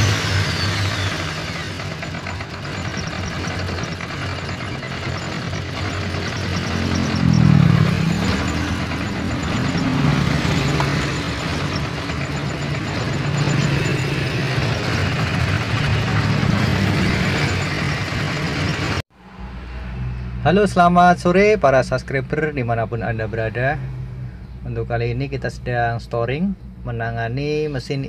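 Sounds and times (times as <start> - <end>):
car engine running rough: 0.0 - 19.5.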